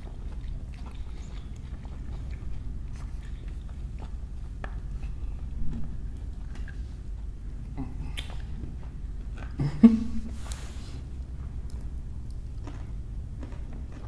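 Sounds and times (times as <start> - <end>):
person chewing food: 0.0 - 14.0
wet mouth sounds: 7.6 - 10.7.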